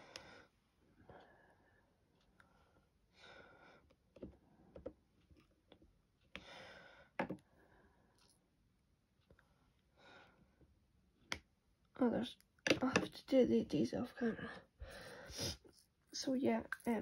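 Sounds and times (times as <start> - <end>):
soft breaths: 0.0 - 5.6, 6.2 - 8.6, 9.2 - 10.8, 14.2 - 16.0
faint clicks and taps: 3.8 - 6.6.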